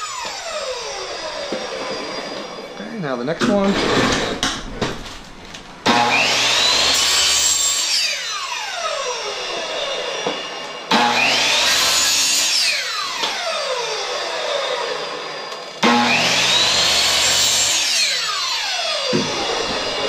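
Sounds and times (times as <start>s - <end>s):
miter saw motor whine: 0.0s - 3.2s, 5.8s - 20.0s
saw cutting plastic pipe: 5.9s - 20.0s.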